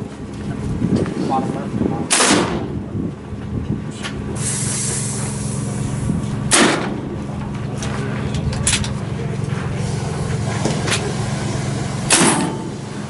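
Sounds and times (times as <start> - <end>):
steady low hum: 0.0 - 13.0
air rifle shots: 2.1 - 2.8, 6.5 - 7.0
brief hiss of air: 4.4 - 6.1.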